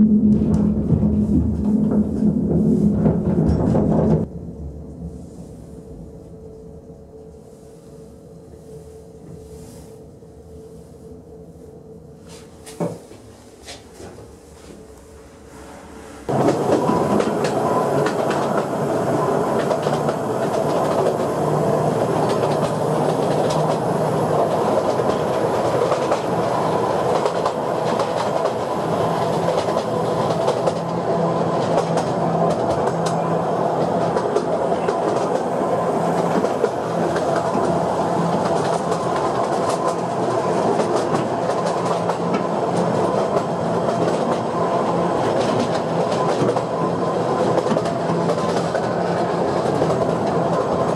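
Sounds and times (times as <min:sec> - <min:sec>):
train wheels rumbling and rattling: 0:00.0 - 0:05.0, 0:12.3 - 0:50.9
low humming tone: 0:00.0 - 0:12.7.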